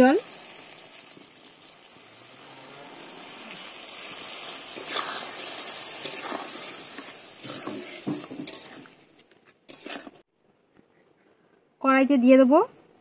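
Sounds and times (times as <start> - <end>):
spices sizzling and bubbling: 0.0 - 10.3
spatula scraping a pan: 4.2 - 9.0, 9.7 - 10.2.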